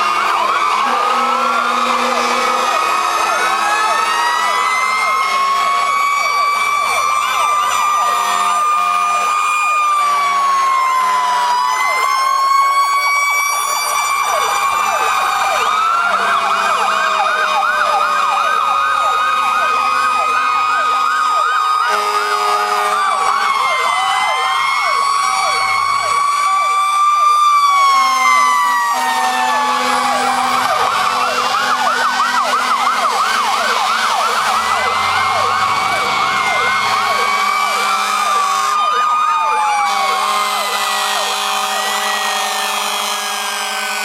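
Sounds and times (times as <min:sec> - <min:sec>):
fire truck sirens wailing and yelping: 0:00.0 - 0:44.0.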